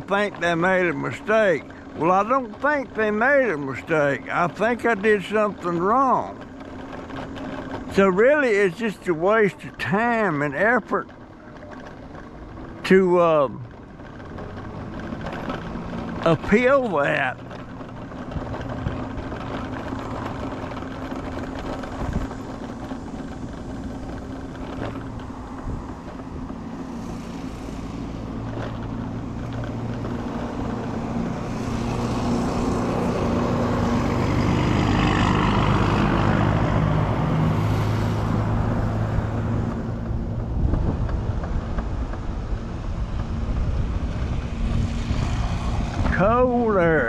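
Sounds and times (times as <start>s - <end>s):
low engine hum: 0.0s - 47.0s
vehicle passing: 0.0s - 47.0s.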